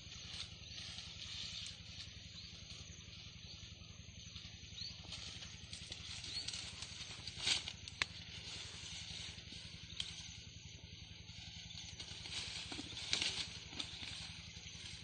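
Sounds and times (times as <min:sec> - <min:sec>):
low steady hum: 0:00.0 - 0:15.0
leaves rustling: 0:04.8 - 0:10.5, 0:11.2 - 0:15.0.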